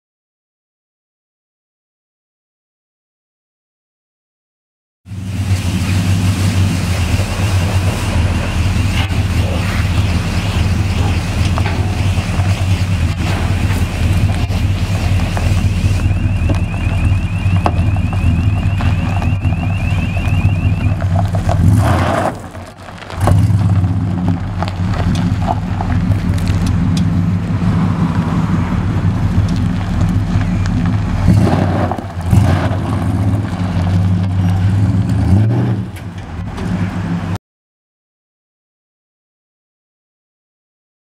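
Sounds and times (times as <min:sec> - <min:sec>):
car engine idling: 0:05.1 - 0:37.4
rapid high beeping: 0:15.6 - 0:21.0.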